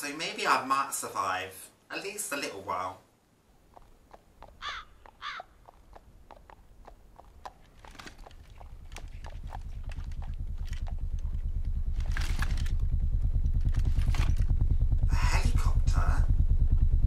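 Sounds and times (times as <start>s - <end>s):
horse hooves clopping on pavement: 3.6s - 12.9s
helicopter rotor beating: 3.7s - 17.0s
bird calls: 4.5s - 5.8s.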